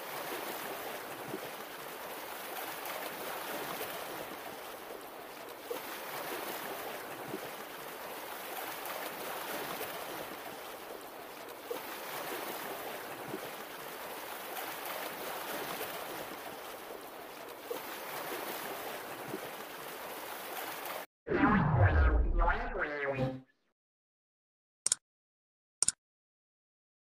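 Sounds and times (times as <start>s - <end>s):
sea waves washing on shore: 0.0s - 21.0s
sharp water splash: 5.6s - 10.8s, 17.6s - 22.7s.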